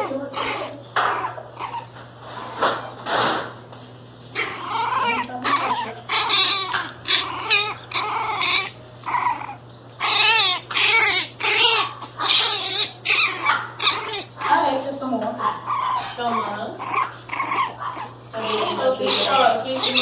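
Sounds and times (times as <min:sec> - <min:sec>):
puppy yelping and whining: 0:00.0 - 0:03.0, 0:04.2 - 0:14.6, 0:15.6 - 0:20.0
puppy growling: 0:00.0 - 0:03.6, 0:04.2 - 0:20.0.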